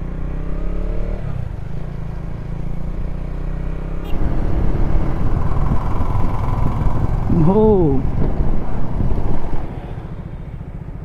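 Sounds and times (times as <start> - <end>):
motorcycle engine running: 0.0 - 11.0
rushing wind noise: 4.1 - 10.3.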